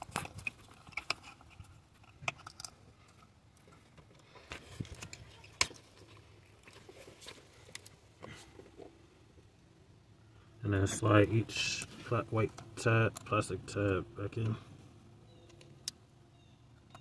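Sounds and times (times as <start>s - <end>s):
plastic plugs clicking onto coils: 12.5s - 14.6s.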